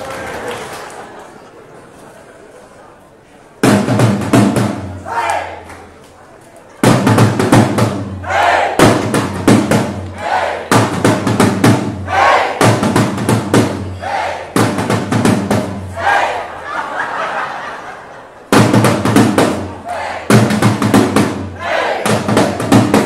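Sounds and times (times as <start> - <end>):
crowd shouting and cheering: 0.0 - 1.8, 4.9 - 6.0, 8.0 - 9.3, 9.9 - 10.9, 12.0 - 12.8, 13.7 - 14.7, 15.6 - 18.5, 19.6 - 20.6, 21.4 - 23.0
marching drum strokes: 3.6 - 5.1, 6.8 - 16.5, 18.5 - 23.0.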